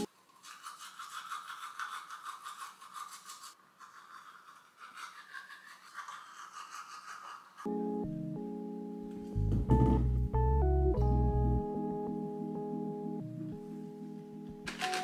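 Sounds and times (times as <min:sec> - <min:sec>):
toothbrush scrubbing teeth: 0:00.3 - 0:07.7.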